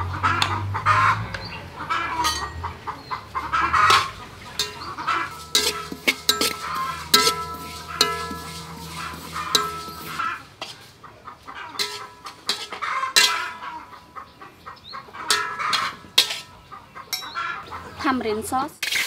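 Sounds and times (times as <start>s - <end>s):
chickens clucking: 0.0s - 18.7s
metal spatula scraping wok: 3.5s - 11.0s, 11.7s - 14.1s, 15.0s - 17.6s, 18.8s - 19.0s.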